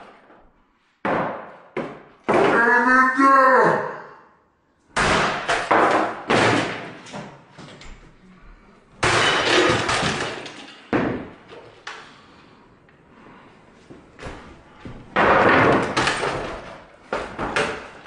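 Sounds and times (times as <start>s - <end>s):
hockey stick smashing table: 1.0s - 2.6s, 5.0s - 7.4s, 9.0s - 11.7s, 15.2s - 18.0s
clattering debris: 9.0s - 11.1s.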